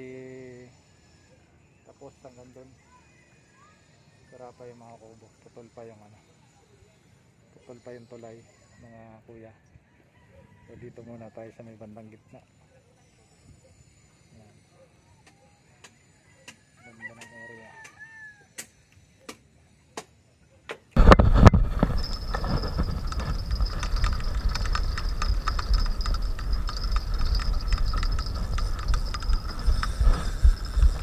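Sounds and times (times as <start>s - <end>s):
faint rooster crow: 2.7s - 4.9s, 8.7s - 11.6s, 15.3s - 18.7s
thin high whine: 21.0s - 31.0s
wind rushing on microphone: 21.0s - 31.0s.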